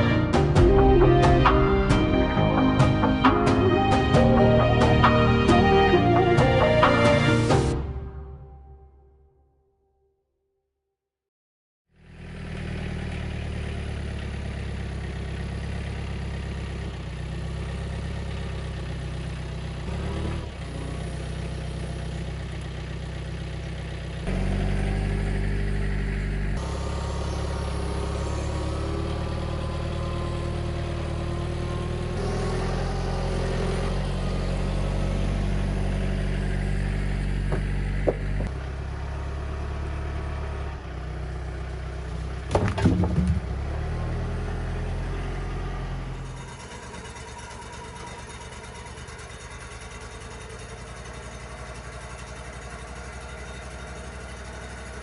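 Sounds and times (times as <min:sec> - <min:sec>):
large engine running: 0:00.0 - 0:07.8, 0:11.9 - 0:55.0
sharp knocks: 0:37.5 - 0:38.6.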